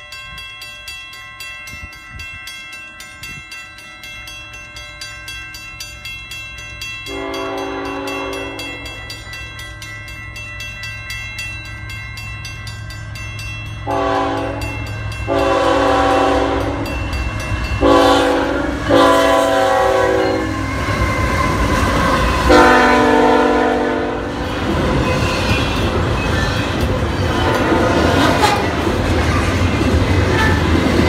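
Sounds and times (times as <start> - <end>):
crossing bell ringing: 0.0 - 31.0
train wheels on rails: 0.0 - 31.0
locomotive air horn blasts: 7.1 - 9.0, 13.9 - 16.9, 17.8 - 24.3, 27.5 - 28.7.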